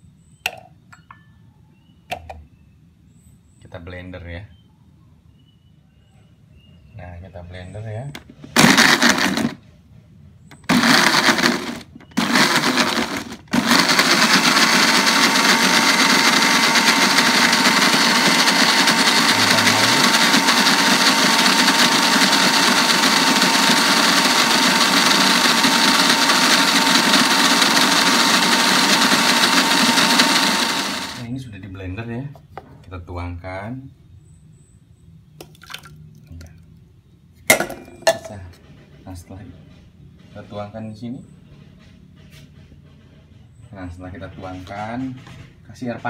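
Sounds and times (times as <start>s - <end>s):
electric blender motor: 8.6s - 9.6s, 10.6s - 31.2s.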